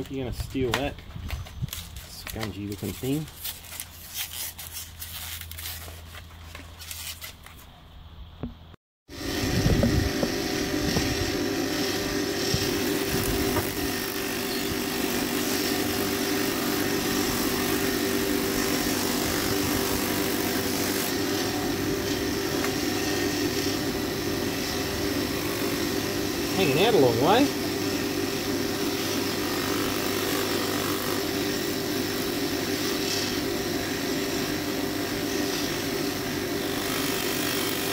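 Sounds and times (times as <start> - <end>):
plastic packaging rustling: 0.9 - 7.8
bench grinder motor running: 9.1 - 37.9.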